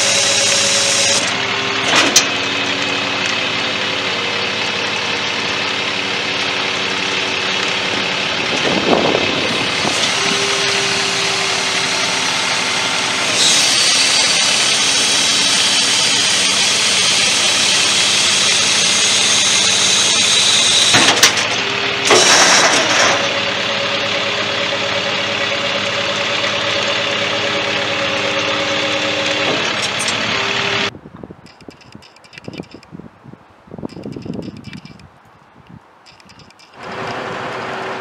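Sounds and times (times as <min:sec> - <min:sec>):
diesel truck engine idling: 0:00.0 - 0:30.9
high-pitched whine: 0:08.7 - 0:30.9.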